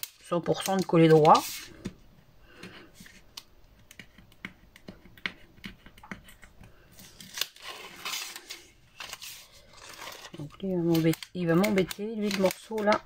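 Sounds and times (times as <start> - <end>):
paper and card clicks and taps: 0.0 - 7.5, 10.3 - 13.0.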